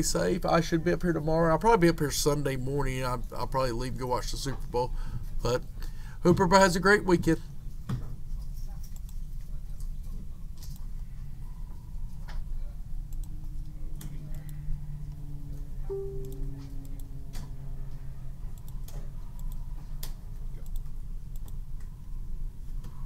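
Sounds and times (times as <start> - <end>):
steady low hum: 0.0 - 23.0
faint held tones: 15.9 - 17.3.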